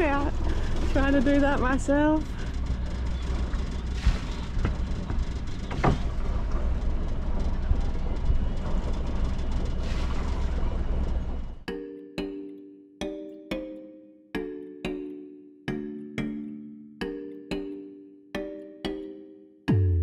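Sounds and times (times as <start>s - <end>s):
boat engine rumbling: 0.0s - 11.7s.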